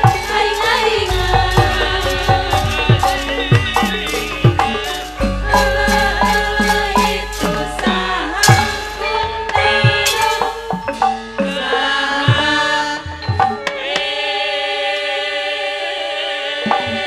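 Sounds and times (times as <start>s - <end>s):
hand drums playing quick strokes: 0.0s - 11.7s
gamelan ensemble held note: 0.0s - 13.7s
metallic strikes: 0.0s - 13.7s.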